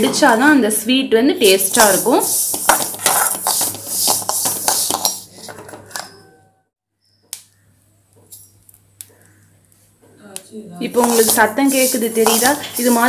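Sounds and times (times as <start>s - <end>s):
skimmer scraping metal pan: 1.5s - 6.2s, 11.0s - 13.0s
seeds rattling in metal pan: 1.7s - 5.3s, 11.0s - 13.0s.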